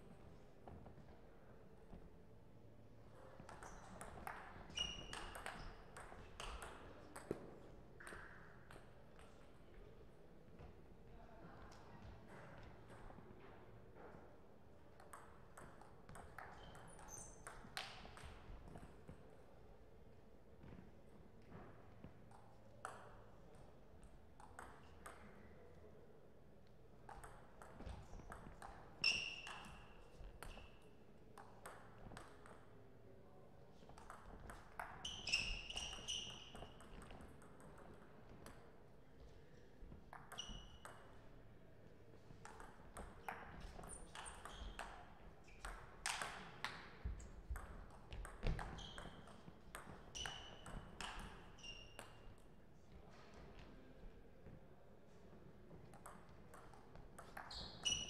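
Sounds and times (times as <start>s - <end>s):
table tennis ball hits: 3.5s - 8.8s, 45.6s - 51.4s
shoes squeaking: 35.0s - 37.0s, 57.5s - 58.0s.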